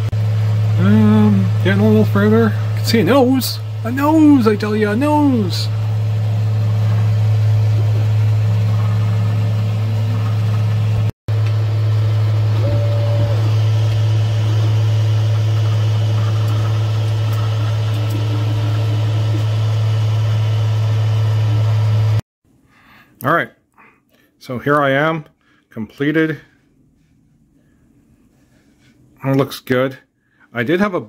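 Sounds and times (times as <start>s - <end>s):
printer low hum: 0.0s - 22.2s.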